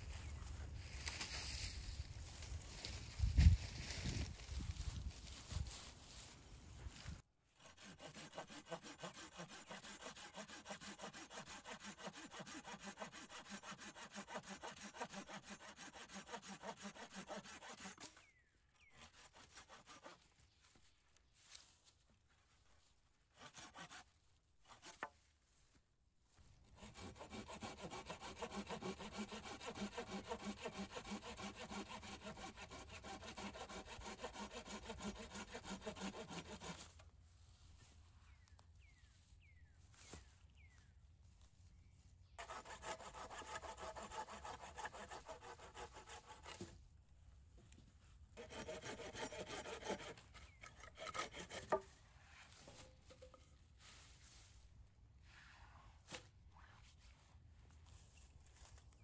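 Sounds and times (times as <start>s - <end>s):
pruning saw rasping through wood: 7.6s - 20.3s, 23.3s - 25.1s, 26.7s - 37.0s, 42.4s - 46.8s, 48.4s - 53.4s.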